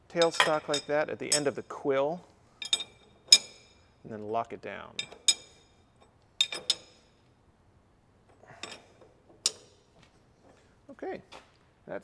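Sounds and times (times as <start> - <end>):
metallic clinks of lathe tool post: 0.2 - 1.6, 2.6 - 3.9, 5.0 - 7.1, 8.6 - 9.8.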